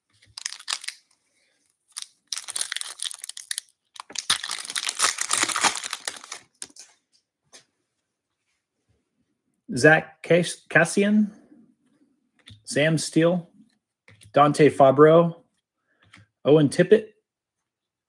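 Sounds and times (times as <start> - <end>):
foil wrapper crinkling and tearing: 0.2 - 1.2, 1.9 - 6.9.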